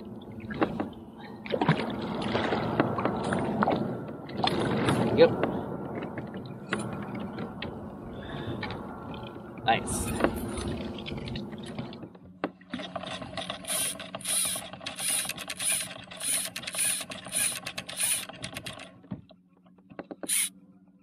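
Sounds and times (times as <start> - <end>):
fishing reel cranking whirr: 13.4 - 18.8, 20.3 - 20.5.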